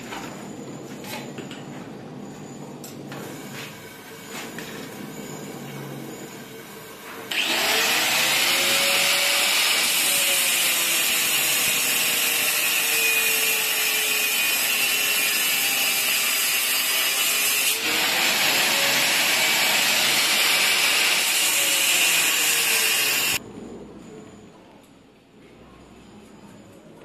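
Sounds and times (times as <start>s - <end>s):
angle grinder cutting steel: 7.3s - 23.4s.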